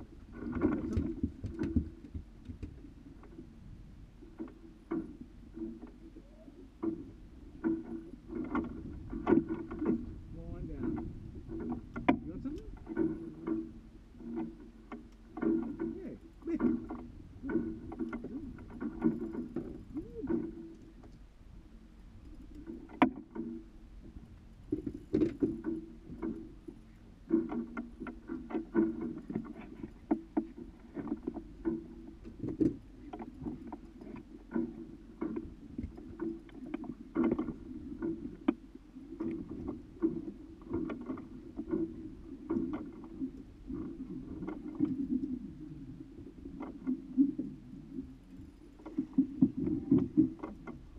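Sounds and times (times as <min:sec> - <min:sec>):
water lapping against boat hull: 0:00.0 - 0:50.9
boat and fishing gear knocking: 0:00.3 - 0:03.5, 0:06.7 - 0:21.2, 0:22.3 - 0:38.6.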